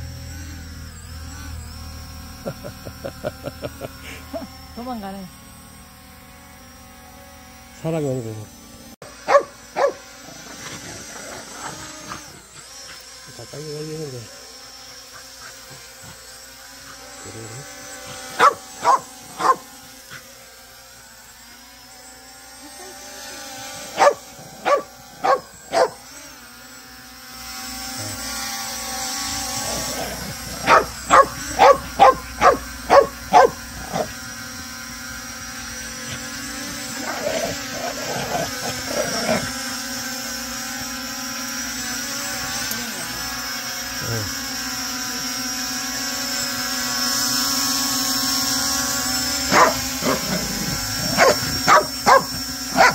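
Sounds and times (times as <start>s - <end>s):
drone propellers whining: 0.0s - 52.9s
dog barking: 9.3s - 10.0s, 18.4s - 19.6s, 24.0s - 26.0s, 30.6s - 34.1s, 49.5s - 50.4s, 51.0s - 52.9s.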